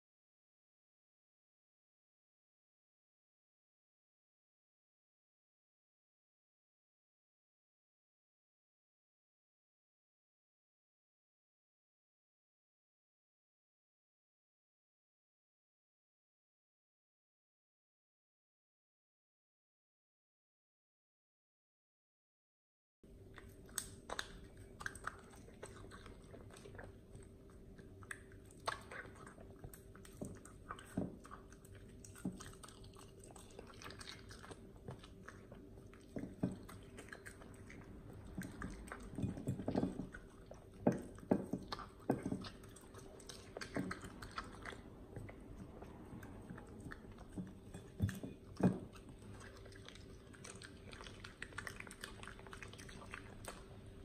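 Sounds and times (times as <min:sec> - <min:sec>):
dog chewing and licking: 0:23.2 - 0:54.0.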